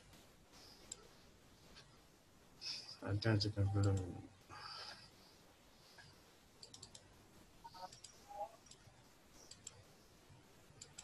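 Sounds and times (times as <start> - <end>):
computer mouse and keyboard clicks: 6.6 - 7.1, 7.7 - 9.8, 10.8 - 11.0.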